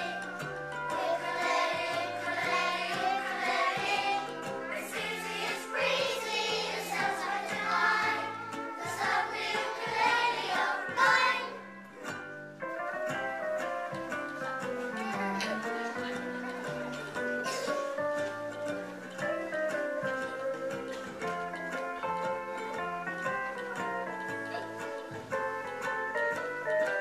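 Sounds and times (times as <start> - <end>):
children singing together: 0.0 - 11.7, 14.8 - 21.5
instrumental accompaniment: 0.0 - 27.0.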